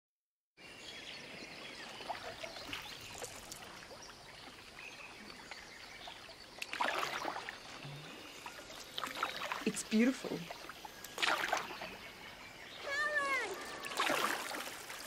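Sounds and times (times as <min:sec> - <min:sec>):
water lapping around a canoe: 0:01.3 - 0:15.0
loud splash: 0:06.7 - 0:07.6, 0:11.2 - 0:11.8, 0:12.8 - 0:15.0.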